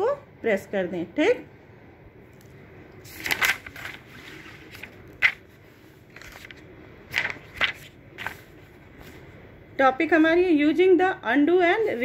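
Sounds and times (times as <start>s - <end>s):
book pages turning: 2.4s - 9.2s.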